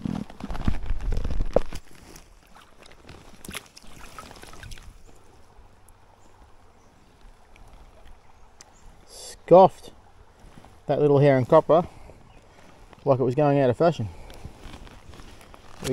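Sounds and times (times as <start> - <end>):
water splashing in a stream: 0.8 - 9.1.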